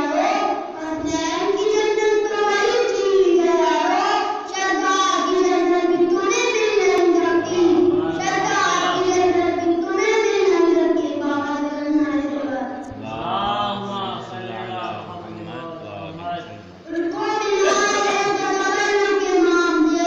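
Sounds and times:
boy singing unaccompanied: 0:00.0 - 0:20.0.

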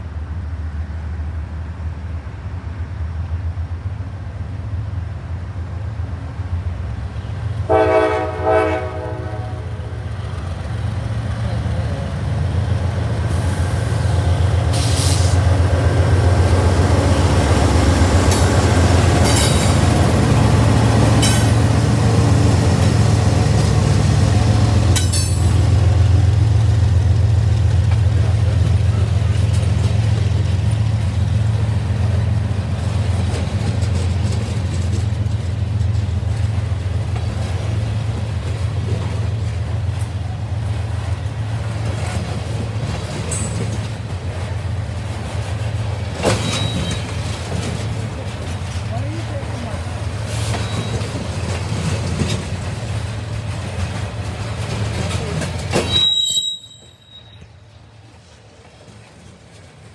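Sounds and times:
diesel locomotive rumbling: 0:00.0 - 0:59.9
train cars rolling on rails: 0:00.0 - 0:59.9
high-pitched wheel squeals: 0:50.6 - 0:51.1, 0:55.8 - 0:57.5.

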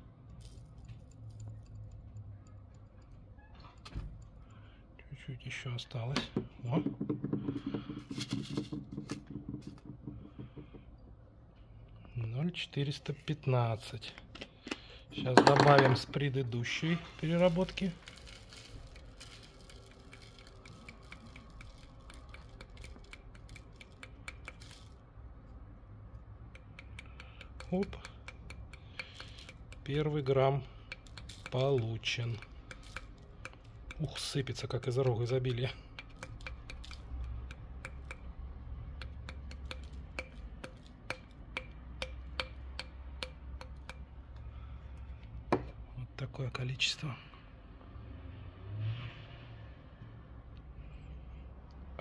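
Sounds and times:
low steady hum: 0:00.0 - 0:47.9
small clicks and taps: 0:18.2 - 0:25.0, 0:26.4 - 0:45.8
light ringing taps on a container: 0:39.0 - 0:44.1.

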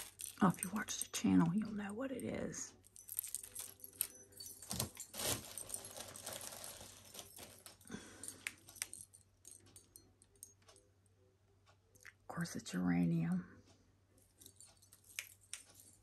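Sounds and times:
wrapping rustling: 0:00.0 - 0:01.0, 0:02.8 - 0:09.6
glass jewelry clinking: 0:00.0 - 0:01.8, 0:02.4 - 0:10.7, 0:14.2 - 0:16.0.

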